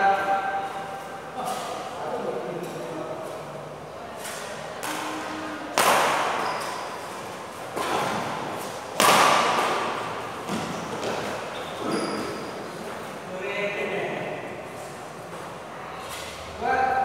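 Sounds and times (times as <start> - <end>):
rackets hitting shuttlecock: 4.3 - 6.9, 7.7 - 11.4.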